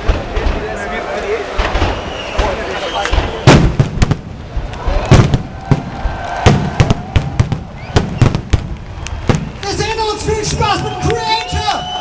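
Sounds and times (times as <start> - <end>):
loud echoing bangs and pops: 0.0 - 11.4.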